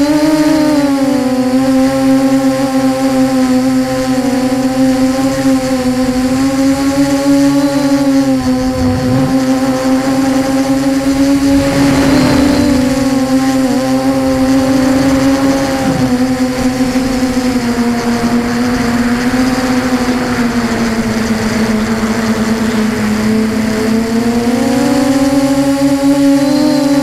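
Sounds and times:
drone motors buzzing whine: 0:00.0 - 0:27.0
air rushing on microphone: 0:08.4 - 0:16.3.

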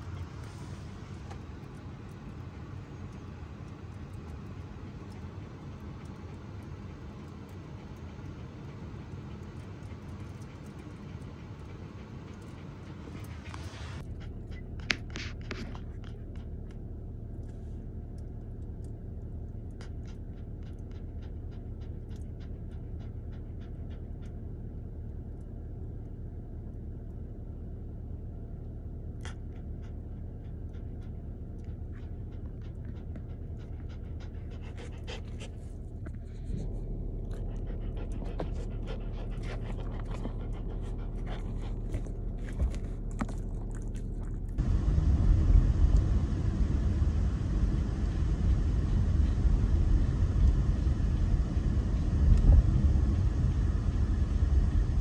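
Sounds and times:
dog panting: 0:00.0 - 0:16.8, 0:19.6 - 0:24.7, 0:29.2 - 0:44.8
car cabin road rumble: 0:24.9 - 0:55.0.

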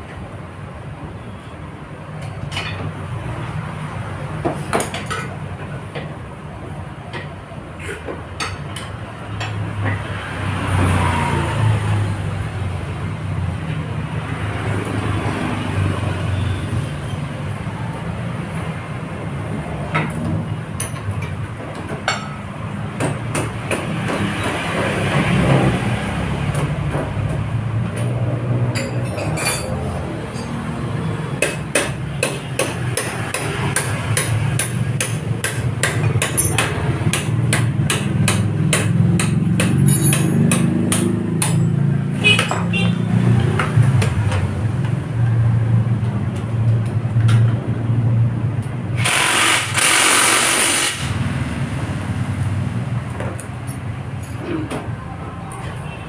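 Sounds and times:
metal tools knocking on scooter: 0:08.0 - 0:10.2, 0:19.9 - 0:24.7, 0:26.5 - 0:30.8, 0:31.4 - 0:45.4.

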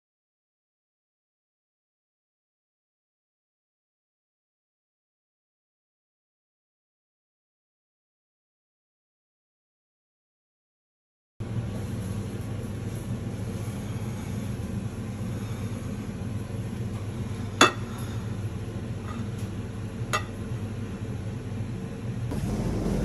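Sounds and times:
steady low hum: 0:11.4 - 0:23.0.

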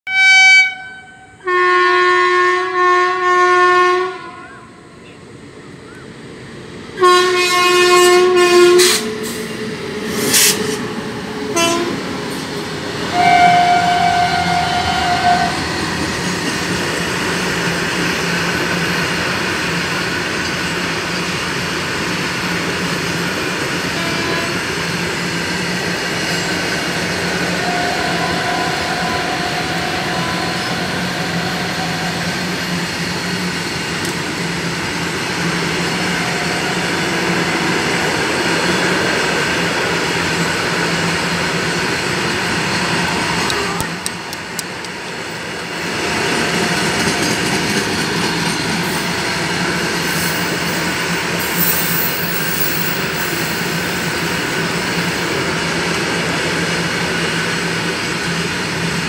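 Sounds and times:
locomotive horn blasts: 0:00.1 - 0:04.7, 0:07.0 - 0:09.1, 0:11.5 - 0:12.0, 0:13.1 - 0:15.6, 0:23.9 - 0:24.7, 0:27.3 - 0:32.4, 0:43.5 - 0:44.0.

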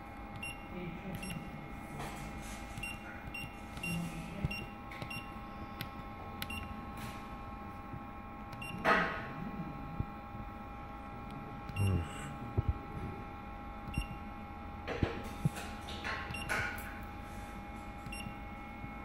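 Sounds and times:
machine electrical hum: 0:00.0 - 0:19.0
keypad beeps: 0:00.3 - 0:01.4, 0:02.8 - 0:05.4, 0:06.4 - 0:06.7, 0:08.5 - 0:08.8, 0:11.7 - 0:11.9, 0:13.9 - 0:14.2, 0:16.3 - 0:16.6, 0:18.1 - 0:18.4.

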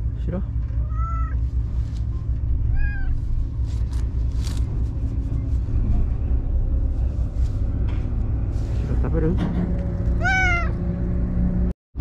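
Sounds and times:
cat meowing: 0:00.8 - 0:01.4, 0:02.7 - 0:03.2, 0:10.2 - 0:10.8
wind rumble on microphone: 0:01.4 - 0:11.6.

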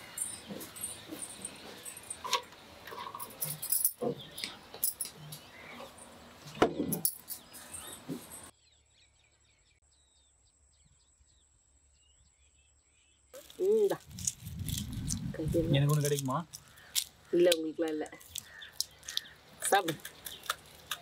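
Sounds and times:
glass jar clicks and rattles: 0:00.2 - 0:04.0.

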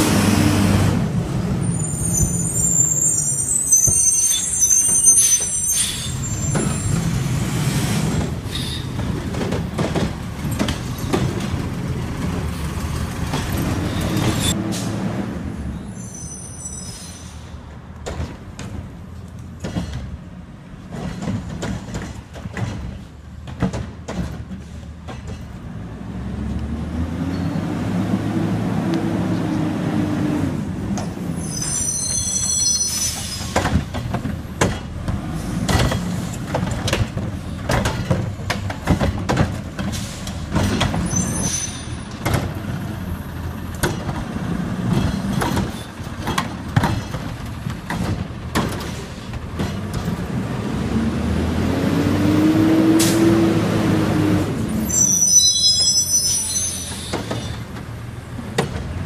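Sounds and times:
high brake squeals: 0:01.6 - 0:07.2, 0:08.5 - 0:08.9, 0:15.8 - 0:17.6, 0:31.2 - 0:33.8, 0:41.0 - 0:42.2, 0:54.7 - 0:57.7
clanks and knocks: 0:09.0 - 0:12.4, 0:20.9 - 0:25.6, 0:33.5 - 0:41.1, 0:43.8 - 0:50.2.

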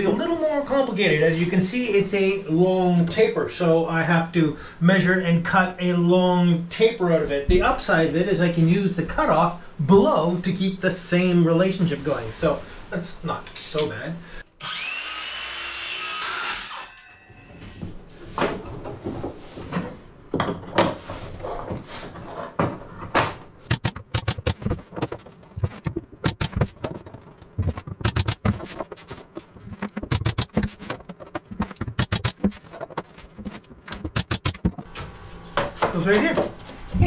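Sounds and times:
wooden knocks and taps: 0:23.7 - 0:34.8.

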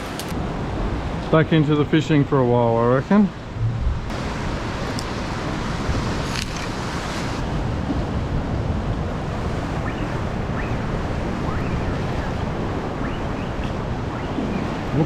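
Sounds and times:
ocean waves and surf: 0:00.0 - 0:15.0
wind rumbling on microphone: 0:03.3 - 0:15.0.

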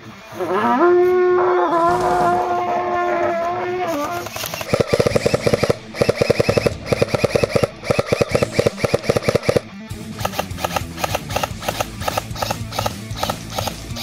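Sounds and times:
airsoft rifle full-auto bursts: 0:03.9 - 0:14.0
rock music with steady beat: 0:04.2 - 0:14.0.

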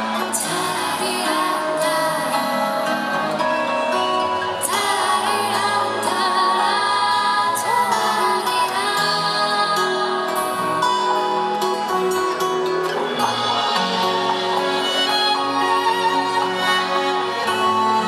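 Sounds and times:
strummed acoustic guitar: 0:00.0 - 0:18.0
woman singing into microphone: 0:00.1 - 0:03.5, 0:04.5 - 0:10.9.

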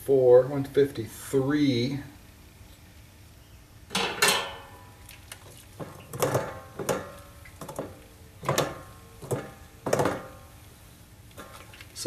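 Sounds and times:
metal utensils clanking on steel: 0:03.9 - 0:04.8.

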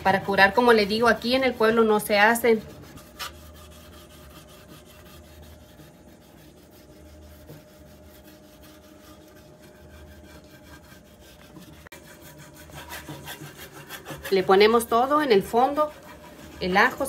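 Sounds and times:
garlic scraping on clay pot: 0:00.0 - 0:17.0.

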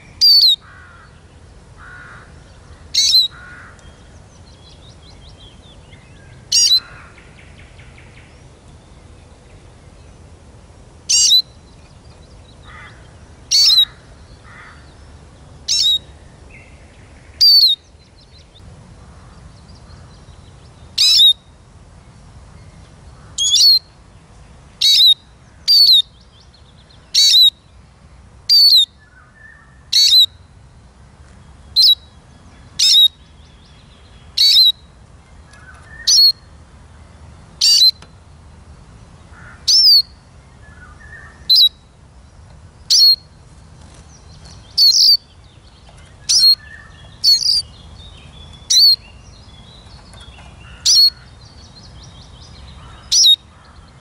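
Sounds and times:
bird calling high clear notes: 0:02.9 - 0:04.0.

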